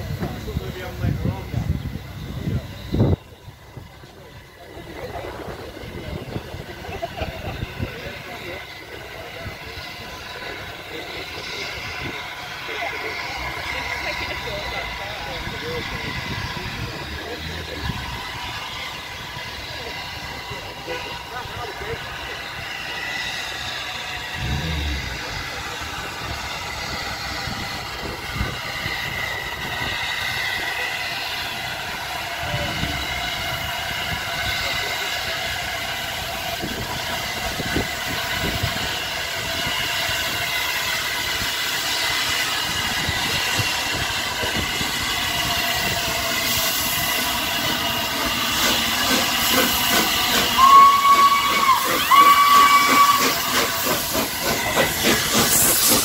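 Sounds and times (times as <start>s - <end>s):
steam locomotive hissing: 0.0s - 56.0s
steam whistle blasts: 50.5s - 53.8s.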